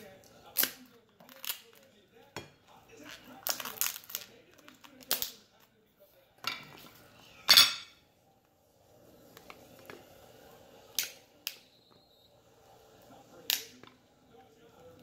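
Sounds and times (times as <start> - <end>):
scissors crunching crab shell: 0.5 - 1.9, 3.0 - 5.4
shell cracking: 0.5 - 1.9.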